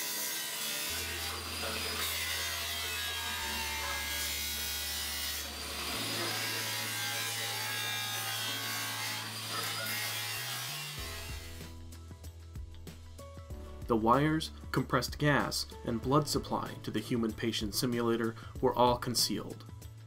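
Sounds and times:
grinder cutting metal: 0:00.0 - 0:11.8
background music bass notes: 0:11.0 - 0:20.0.

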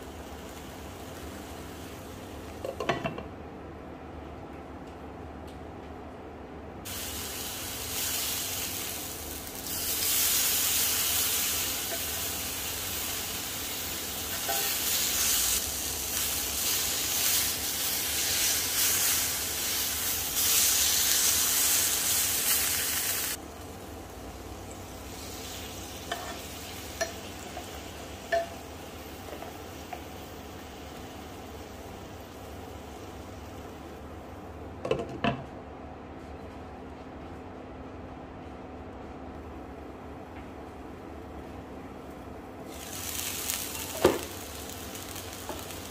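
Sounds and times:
steak sizzling in a skillet: 0:06.9 - 0:23.4, 0:42.7 - 0:45.9.

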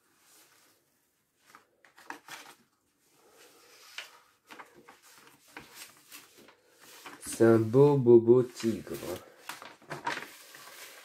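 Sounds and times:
plastic film crinkling: 0:03.9 - 0:11.0.

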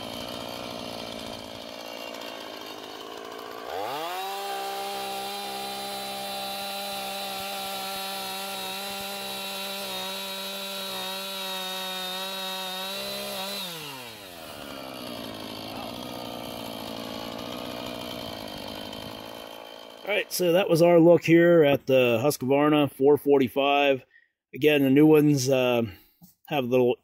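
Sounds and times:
chainsaw engine revving: 0:00.0 - 0:20.7.

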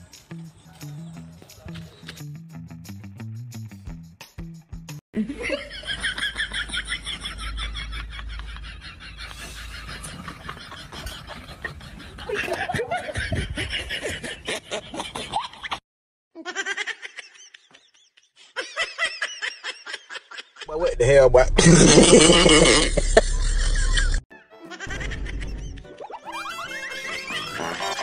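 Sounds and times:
bursts of laughter: 0:21.5 - 0:28.0.

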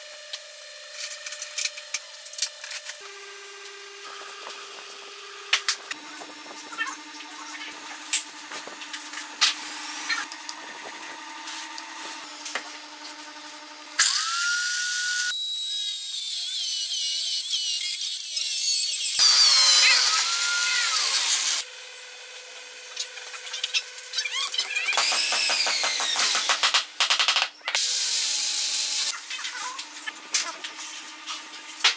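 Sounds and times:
drill boring into wood: 0:04.6 - 0:21.7, 0:23.3 - 0:29.1.

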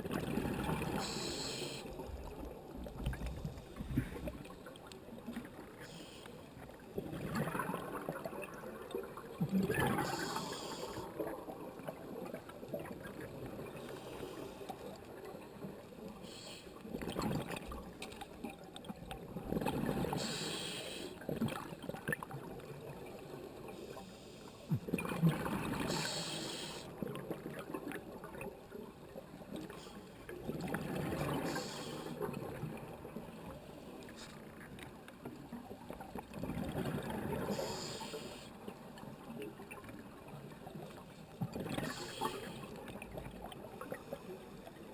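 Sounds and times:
exhaled bubbles underwater: 0:00.0 - 0:04.5, 0:06.7 - 0:13.9, 0:18.4 - 0:20.4, 0:24.8 - 0:26.2, 0:26.9 - 0:33.7, 0:35.4 - 0:38.0
low water gurgle: 0:00.0 - 0:44.9.

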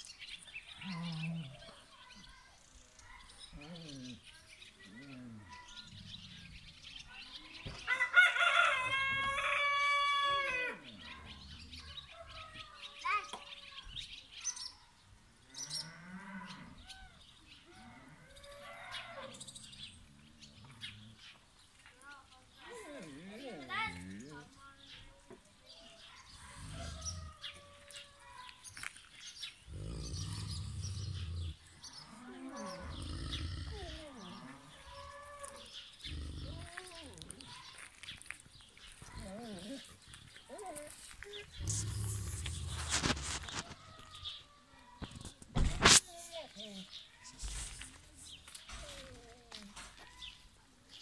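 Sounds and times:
small birds chirping: 0:00.0 - 0:08.0, 0:10.7 - 0:51.0
dog growling low: 0:00.8 - 0:01.8, 0:03.5 - 0:06.9, 0:26.3 - 0:27.5, 0:29.7 - 0:37.5, 0:39.1 - 0:43.1
rooster crowing: 0:07.9 - 0:10.8.

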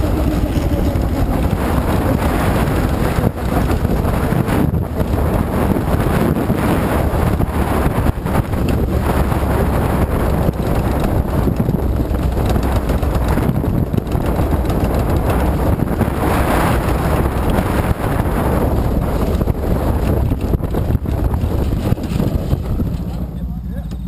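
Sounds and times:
wind buffeting microphone: 0:00.0 - 0:23.4
race car engine running: 0:00.0 - 0:24.0.

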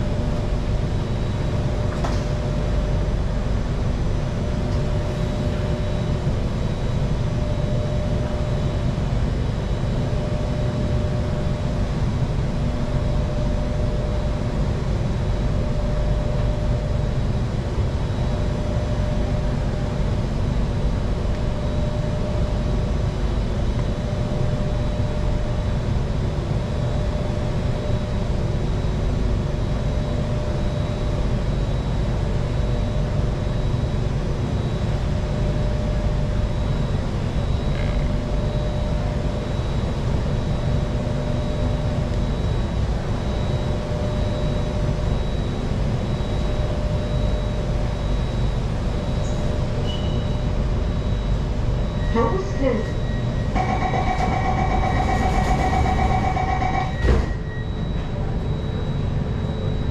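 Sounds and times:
train rumbling inside carriage: 0:00.0 - 0:08.5, 0:52.0 - 0:59.9
faint steady whine: 0:00.0 - 0:59.9.

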